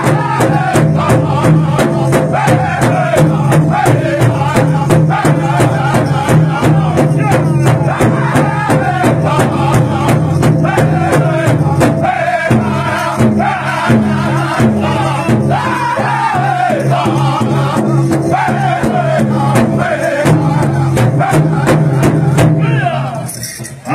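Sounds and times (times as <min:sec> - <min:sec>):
big drum beat: 0:00.0 - 0:23.3
voices singing in unison: 0:00.0 - 0:23.9.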